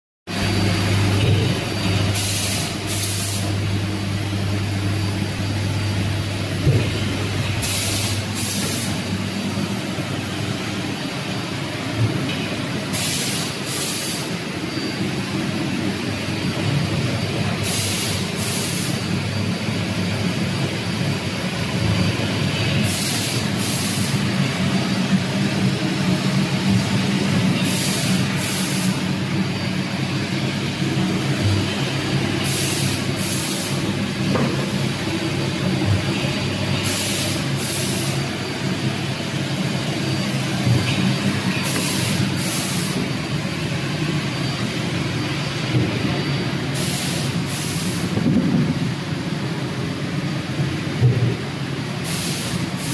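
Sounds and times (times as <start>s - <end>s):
fan and motor hum: 0.3s - 52.9s
short air hisses: 7.6s - 9.0s, 12.9s - 14.3s, 22.9s - 24.1s, 46.8s - 48.0s, 52.0s - 52.9s.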